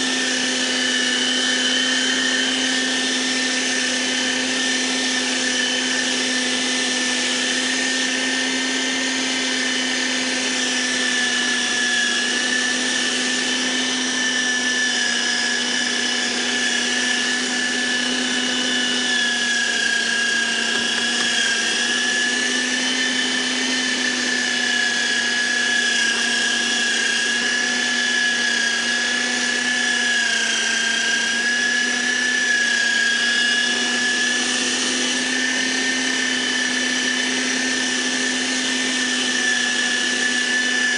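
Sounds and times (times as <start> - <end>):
electric meat grinder motor whine: 0.0 - 40.9.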